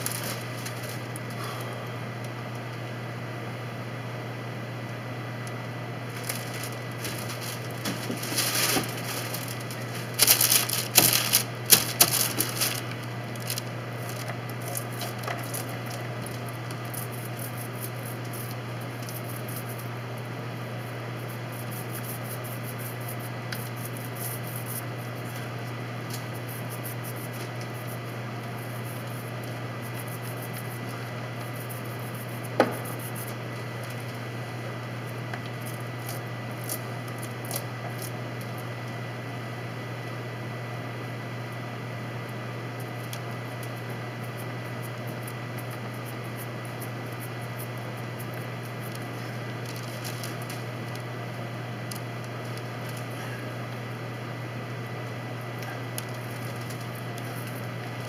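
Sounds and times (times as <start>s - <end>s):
crackling and rustling: 0.0s - 1.4s, 5.5s - 20.2s, 42.8s - 51.2s, 51.8s - 53.1s, 55.6s - 58.0s
steady low hum: 0.0s - 58.0s.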